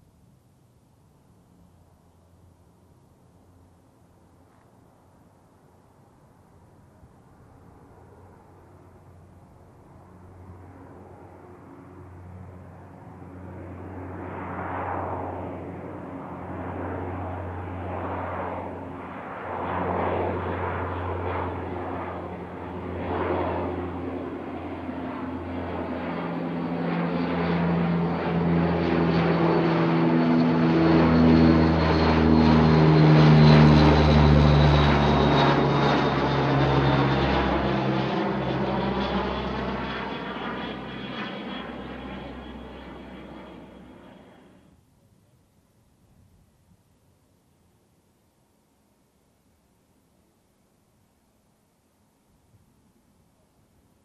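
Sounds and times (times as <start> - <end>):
propeller drone: 0.0 - 45.0
high turbine whine: 27.2 - 44.6.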